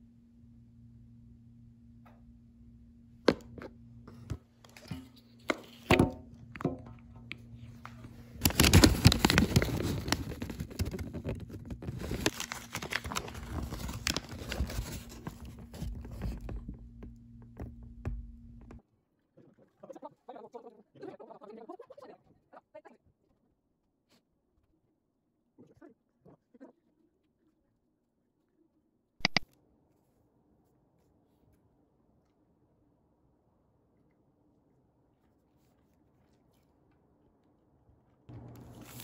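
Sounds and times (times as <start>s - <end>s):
paper wrapper crinkling: 7.9s - 16.7s, 38.3s - 39.0s.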